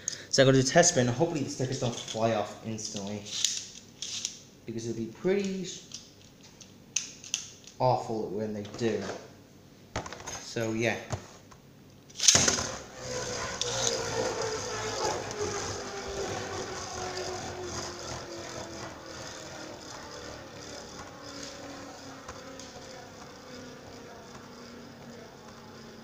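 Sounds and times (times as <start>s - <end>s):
spinning top launch: 12.2s - 23.5s
spinning top whirring on plastic: 12.2s - 26.0s.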